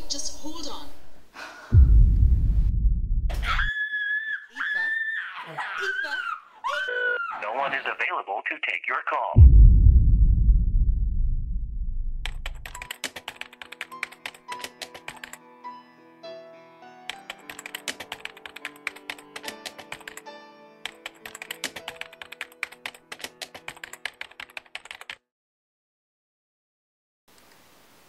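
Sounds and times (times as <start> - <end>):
rapid keyboard key clicks: 12.3 - 15.4, 17.1 - 20.2, 20.9 - 25.2.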